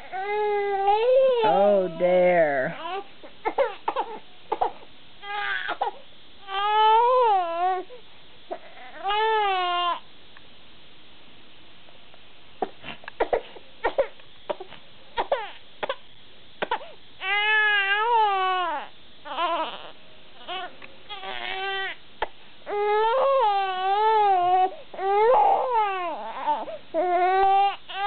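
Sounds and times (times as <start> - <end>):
baby crying: 0.0 - 1.7, 2.8 - 7.9, 8.5 - 10.0, 14.5 - 16.0, 16.6 - 22.0, 22.7 - 28.0.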